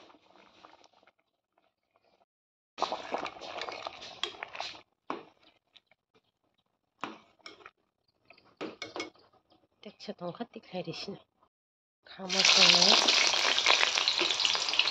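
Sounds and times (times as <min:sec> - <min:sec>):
spoon scraping and stirring pot: 0:02.8 - 0:09.6.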